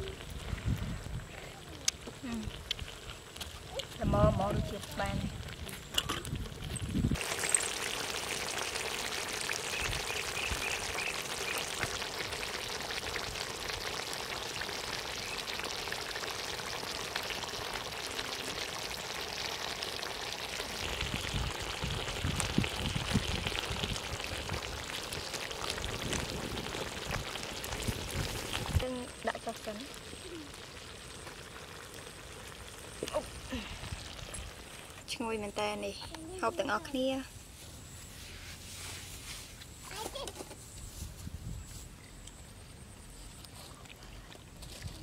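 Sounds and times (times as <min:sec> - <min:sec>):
stew bubbling and sizzling: 0:00.0 - 0:45.0.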